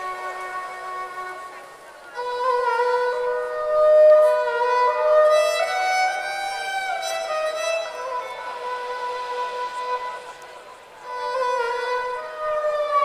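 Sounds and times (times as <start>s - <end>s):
fiddle melody: 0.0s - 13.0s.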